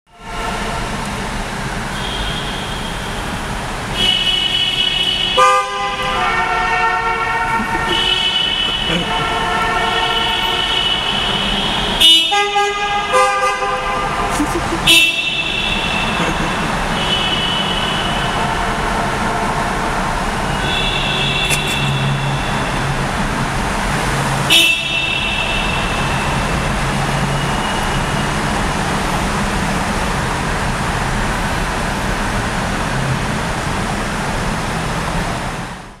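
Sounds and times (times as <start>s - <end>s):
traffic roar and tyre noise: 0.1s - 36.0s
car horns honking: 1.9s - 23.2s, 24.4s - 28.4s.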